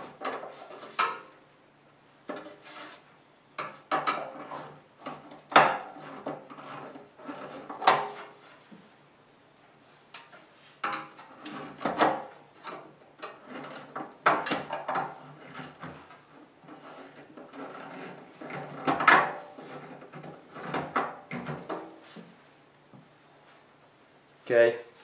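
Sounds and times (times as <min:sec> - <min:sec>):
metal scraping and knocking: 0:00.0 - 0:01.4, 0:02.2 - 0:08.7, 0:10.2 - 0:22.3.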